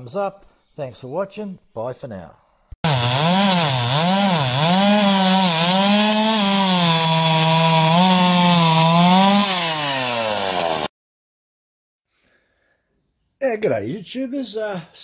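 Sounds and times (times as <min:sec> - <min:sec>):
chainsaw cutting wood: 0:02.8 - 0:10.9.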